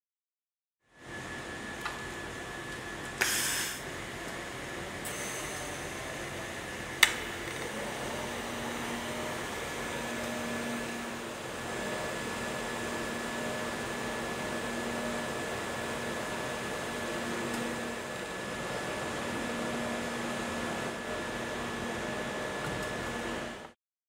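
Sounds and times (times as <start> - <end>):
short hiss: 3.2 - 3.8
welding arc hissing: 3.2 - 3.9.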